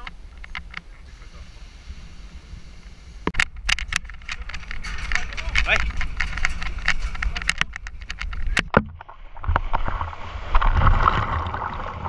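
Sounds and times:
footsteps on metal gangway: 0:03.3 - 0:08.7
splash into water: 0:09.0 - 0:12.0
churning frothing water: 0:09.3 - 0:12.0.

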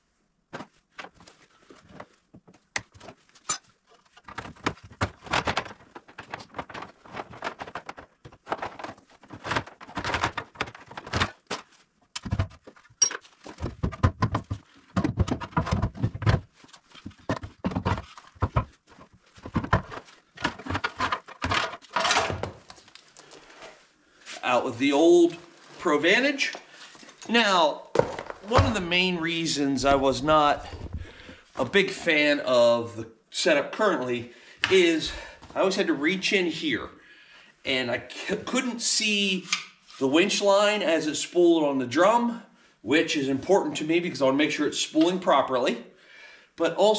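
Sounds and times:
hand tools and metal parts clattering: 0:01.2 - 0:23.8
heavy thuds: 0:28.0 - 0:29.2.

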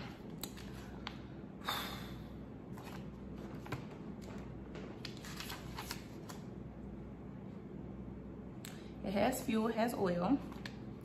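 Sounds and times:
paper rustling: 0:02.8 - 0:06.4
pages turned: 0:02.8 - 0:06.5.

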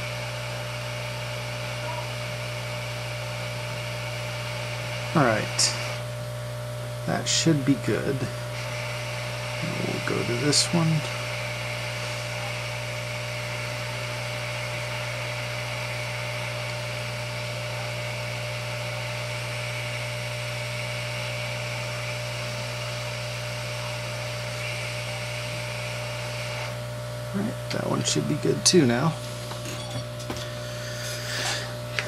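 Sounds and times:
hot air station hissing: 0:00.0 - 0:06.1, 0:06.8 - 0:32.0
steady low hum: 0:00.0 - 0:32.0.

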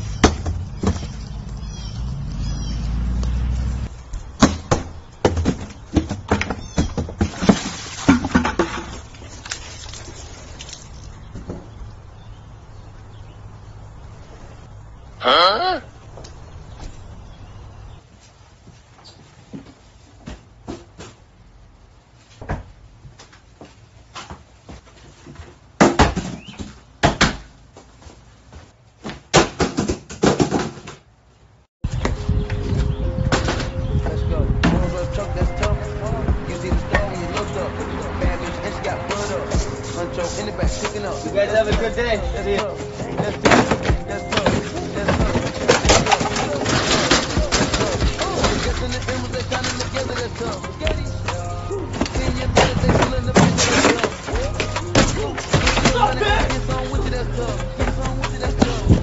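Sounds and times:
parcels thumping onto porch: 0:00.0 - 0:01.6, 0:04.0 - 0:10.0, 0:11.2 - 0:11.8, 0:19.4 - 0:21.3, 0:22.3 - 0:31.1, 0:33.2 - 0:59.0
cardboard box knocks and thuds: 0:00.2 - 0:01.2, 0:04.4 - 0:09.0
plastic bucket knocked over: 0:04.4 - 0:10.8, 0:25.8 - 0:27.4, 0:29.3 - 0:31.0, 0:43.2 - 0:50.8, 0:52.0 - 0:56.8
short cries: 0:15.2 - 0:16.0.

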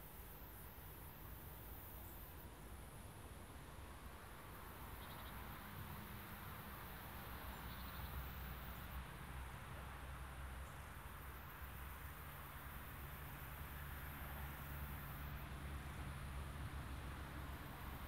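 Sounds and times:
insects chirring: 0:04.9 - 0:05.5.

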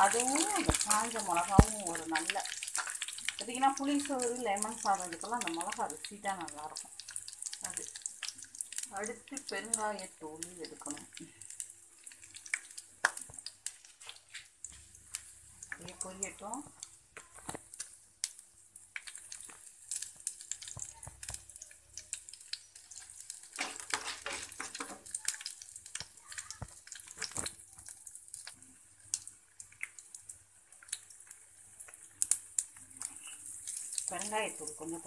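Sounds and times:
wooden spatula stirring: 0:00.0 - 0:05.8, 0:22.3 - 0:28.5
seeds crackling in hot oil: 0:00.0 - 0:35.0.

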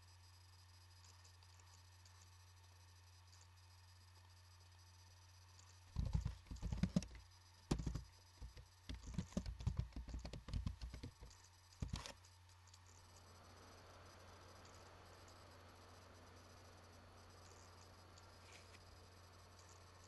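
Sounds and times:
keyboard key clicks: 0:06.0 - 0:12.2.

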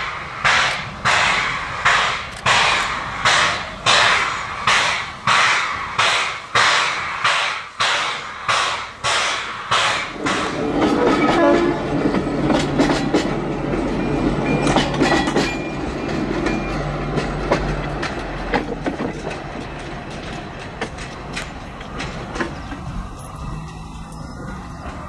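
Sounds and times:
diesel locomotive engine running: 0:00.0 - 0:25.0
train wheels clicking on rail joints: 0:00.0 - 0:25.0.

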